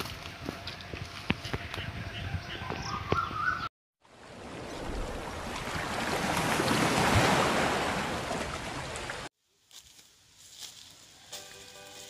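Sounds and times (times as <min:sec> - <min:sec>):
ocean surf breaking: 0:04.1 - 0:09.3.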